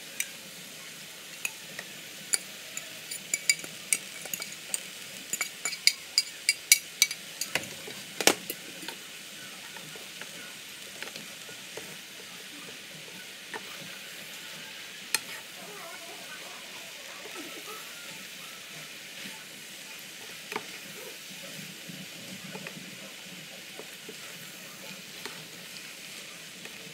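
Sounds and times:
noodles sizzling in a skillet: 0:00.0 - 0:26.9
utensils clicking and knocking: 0:01.4 - 0:08.6.

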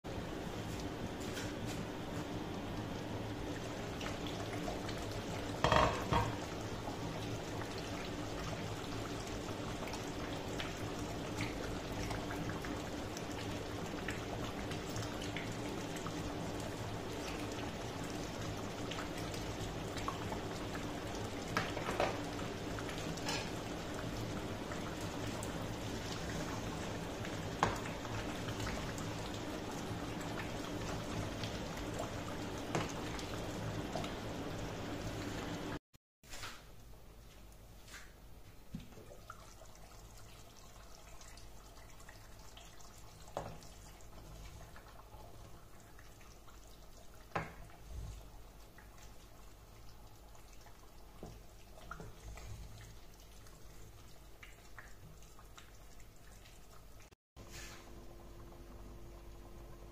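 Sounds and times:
soup bubbling: 0:02.0 - 0:35.6
glass lid clatter: 0:05.7 - 0:06.3.

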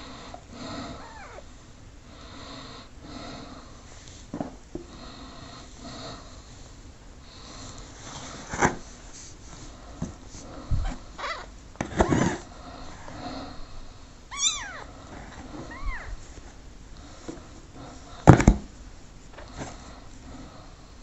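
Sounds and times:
kitten crying faintly: 0:01.0 - 0:01.5, 0:10.8 - 0:11.5, 0:14.3 - 0:15.0, 0:15.6 - 0:16.2
knocks in cardboard box: 0:18.3 - 0:18.7.

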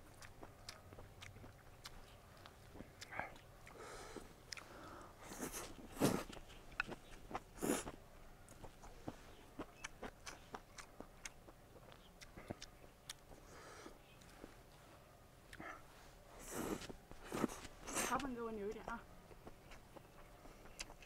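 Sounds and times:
wet mouth clicks chewing: 0:00.0 - 0:14.6, 0:15.5 - 0:21.0
person slurping noodles: 0:07.6 - 0:07.9, 0:16.4 - 0:18.1.

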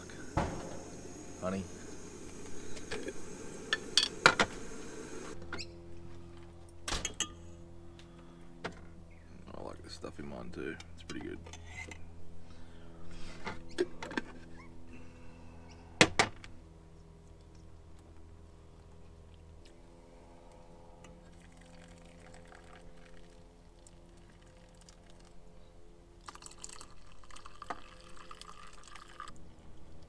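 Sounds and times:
hot water trickling into filter: 0:21.1 - 0:25.5, 0:26.2 - 0:29.4.

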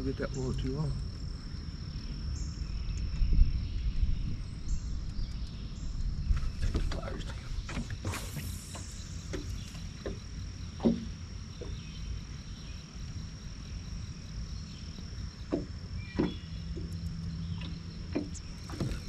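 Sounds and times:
rumble of wind and water: 0:00.0 - 0:19.0
light knocks and clicks: 0:06.3 - 0:11.8, 0:15.4 - 0:19.0
high-pitched insect buzz: 0:07.9 - 0:10.4
short swish: 0:08.0 - 0:09.1.

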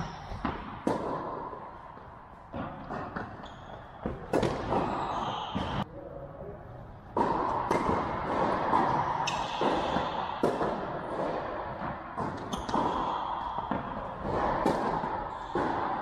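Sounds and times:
tennis ball bouncing: 0:00.0 - 0:05.8, 0:07.1 - 0:16.0
tennis racket striking ball: 0:00.3 - 0:01.6, 0:04.0 - 0:05.8, 0:07.1 - 0:16.0
shoe squeaks: 0:03.2 - 0:05.8, 0:12.4 - 0:12.8.

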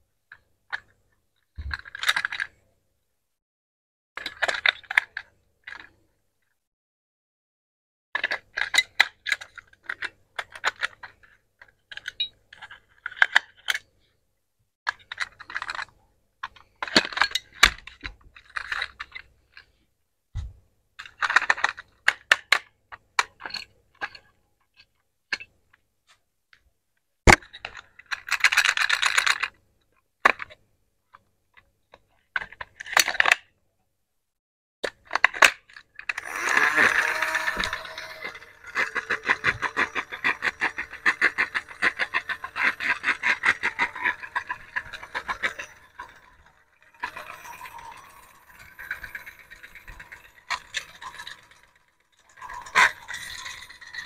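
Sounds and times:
toy mechanism ticking: 0:36.1 - 0:54.0.

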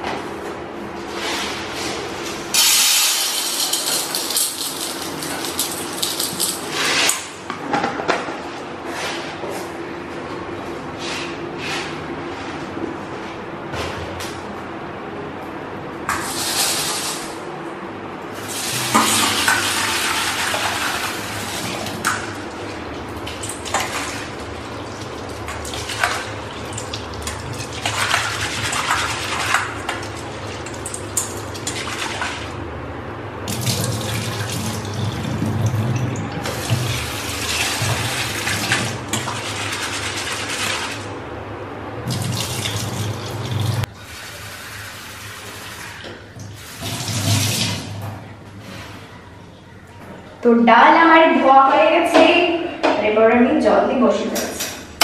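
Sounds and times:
tap water running into bowl: 0:33.5 - 0:41.0, 0:42.1 - 0:47.8
water poured into sink: 0:42.1 - 0:48.0.

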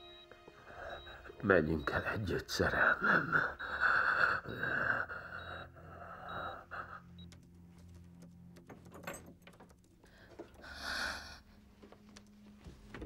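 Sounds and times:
heavy breathing through mask: 0:02.6 - 0:07.2.

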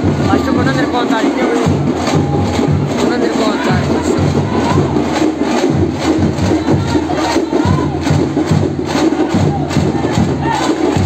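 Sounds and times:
crowd shouting and talking: 0:00.0 - 0:11.0
loud drumming: 0:00.0 - 0:11.0.

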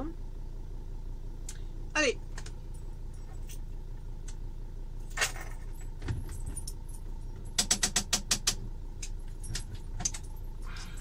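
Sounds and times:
van engine idling: 0:00.0 - 0:11.0
sharp metallic clicks: 0:07.5 - 0:10.3.

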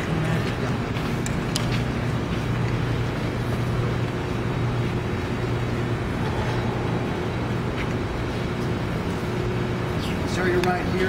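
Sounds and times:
low mechanical hum: 0:00.0 - 0:11.0.

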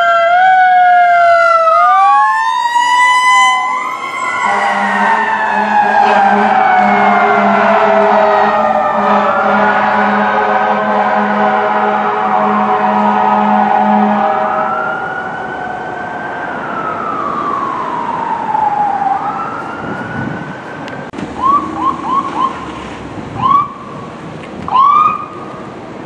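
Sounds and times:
fire truck siren wailing: 0:00.0 - 0:25.9
short rising siren chirps: 0:00.7 - 0:09.9, 0:21.4 - 0:24.0.

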